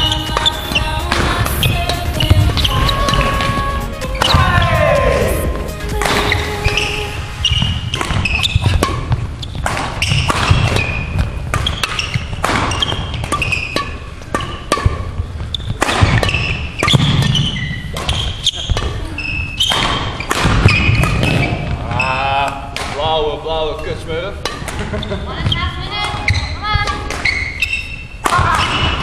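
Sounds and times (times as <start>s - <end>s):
footwork thuds: 0.0s - 6.5s, 7.4s - 19.0s
shoes squeaking on floor: 0.0s - 22.6s, 23.6s - 29.0s
rackets striking shuttlecocks: 0.0s - 23.1s, 24.4s - 29.0s.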